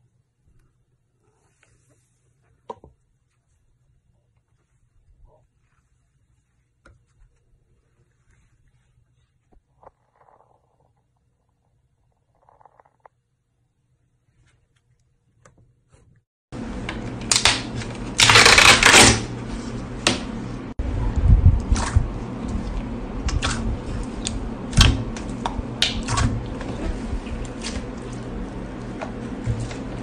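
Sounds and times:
slime squelch: 1.2s - 10.9s, 19.2s - 30.0s.

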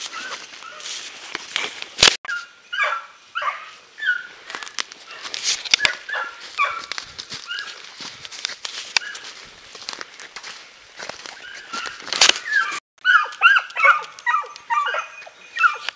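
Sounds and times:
hounds yelping: 0.0s - 0.9s, 2.3s - 7.9s, 9.0s - 9.4s, 11.4s - 15.9s
leaves and brush rustling: 0.0s - 15.9s.

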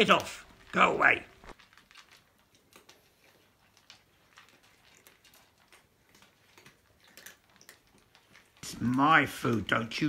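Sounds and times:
cats crunching dry kibble: 0.0s - 10.0s.

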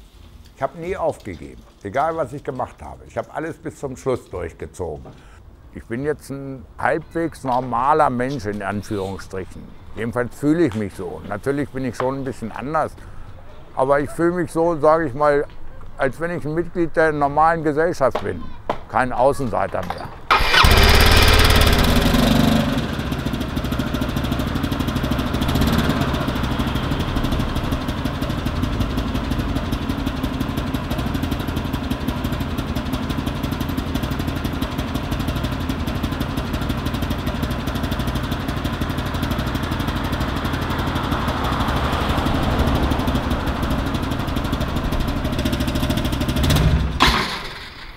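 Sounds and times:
scooter engine idling: 20.3s - 47.4s.

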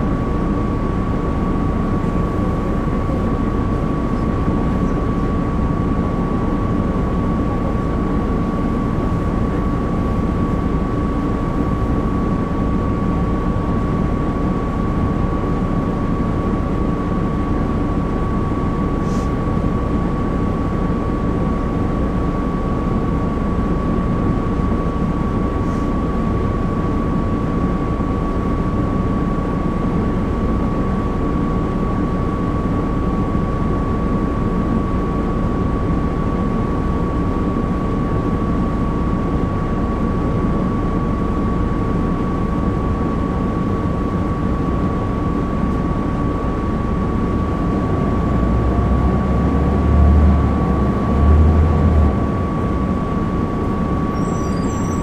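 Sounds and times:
bus diesel engine running: 0.0s - 23.8s, 24.6s - 27.2s, 45.6s - 55.0s
constant high whine: 0.0s - 55.0s
faint short hisses: 19.0s - 19.3s.

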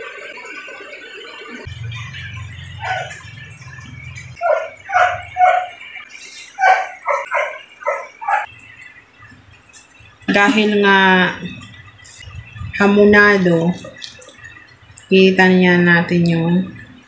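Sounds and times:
dog barking: 2.8s - 3.2s, 4.4s - 5.8s, 6.6s - 8.5s.

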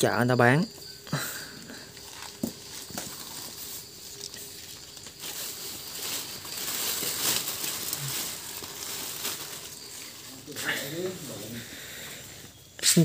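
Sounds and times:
hands rustling leaves: 1.2s - 12.6s
plastic bag crinkling: 1.8s - 11.6s.

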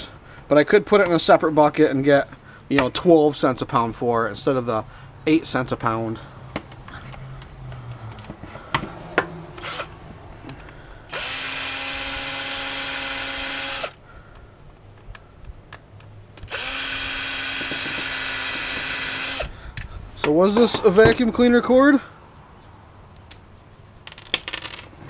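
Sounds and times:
cordless drill running: 9.6s - 9.9s, 11.1s - 14.0s, 16.4s - 19.5s.

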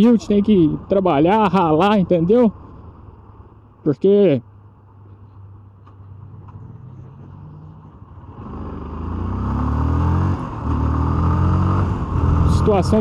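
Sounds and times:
wind and road noise: 0.0s - 13.0s
motorcycle engine revving: 6.0s - 13.0s.

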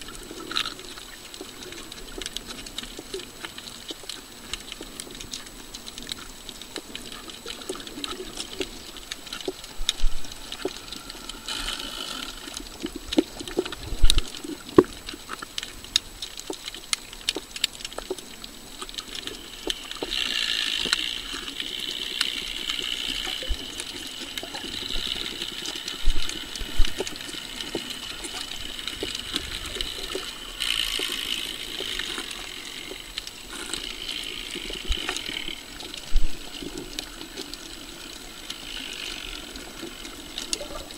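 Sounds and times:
underwater crackle of clicks: 0.0s - 40.9s
underwater hissing: 8.2s - 12.8s.

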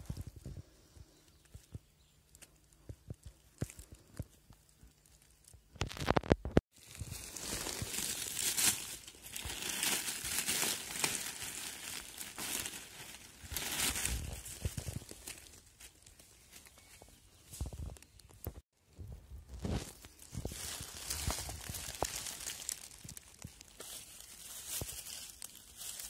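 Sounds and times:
dry leaves rustling: 6.7s - 17.2s, 19.6s - 26.0s.

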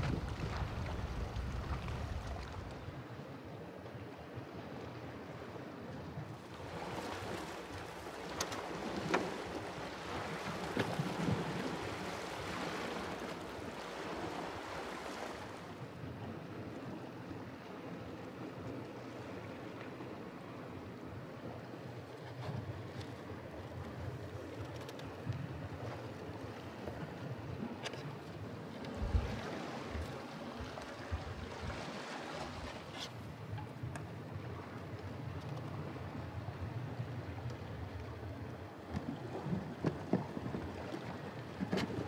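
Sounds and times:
sea waves on rocky shore: 0.0s - 3.1s, 6.4s - 16.1s, 22.8s - 42.0s
wind: 0.0s - 42.0s.

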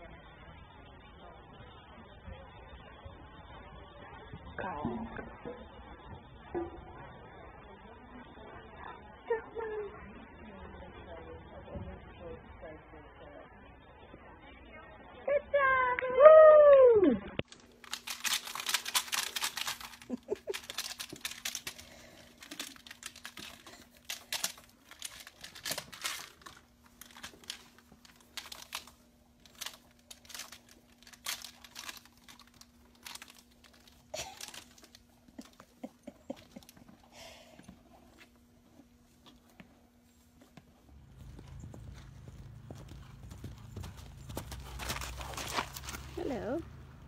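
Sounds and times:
faint steady hum: 0.0s - 47.0s
rustling and crinkling: 17.4s - 46.6s.

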